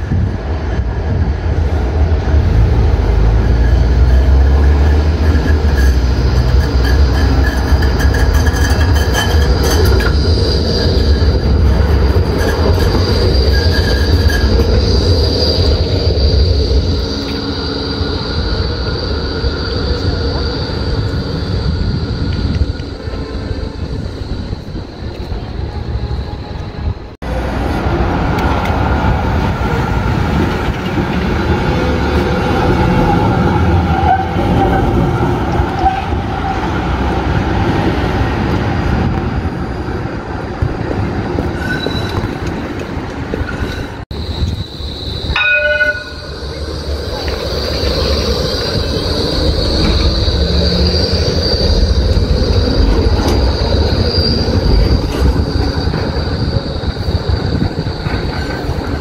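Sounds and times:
trams rumbling on rails: 0.0 - 59.0
high wheel squeal: 3.1 - 27.0, 31.0 - 40.2, 41.4 - 42.6, 43.3 - 59.0
tram warning gong: 45.3 - 51.3.

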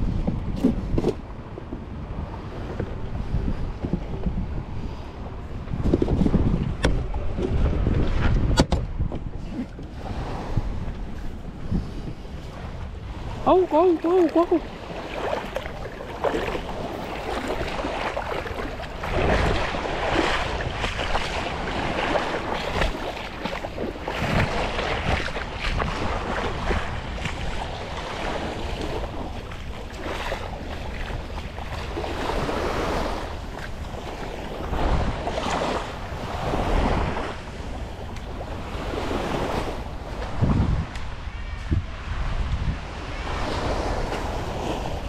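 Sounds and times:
wind buffeting microphone: 0.0 - 45.0
small waves washing on sand: 9.5 - 45.0.

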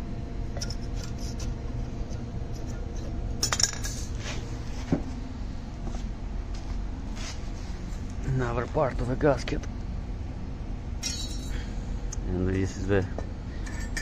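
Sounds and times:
steady low hum: 0.0 - 14.0
metal parts clinking on concrete: 3.4 - 4.2, 11.0 - 11.6, 13.6 - 14.0.

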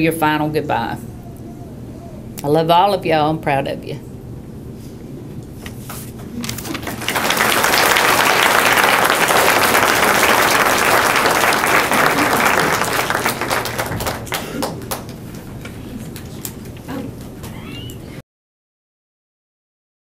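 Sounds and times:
audience applauding: 6.4 - 16.4.

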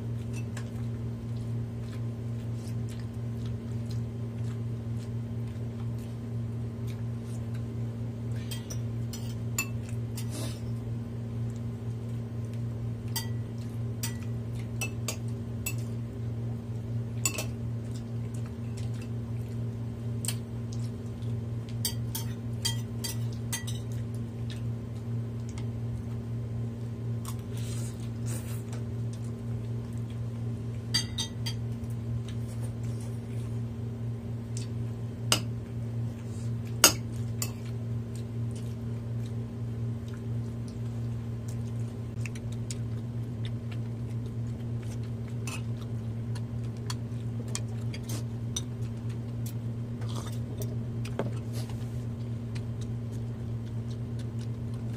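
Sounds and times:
steady low hum: 0.0 - 54.9
cutlery clinking on dishes: 14.0 - 15.8, 21.9 - 24.0, 31.0 - 31.6.

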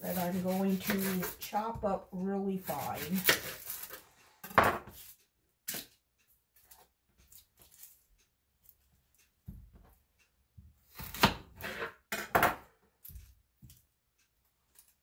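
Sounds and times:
onion peeling taps and rustles: 6.6 - 10.0, 13.0 - 13.9.

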